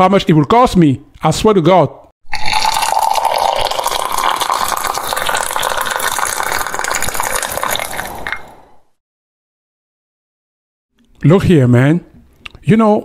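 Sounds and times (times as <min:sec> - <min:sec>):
coffee pouring into a cup: 0:02.3 - 0:08.6.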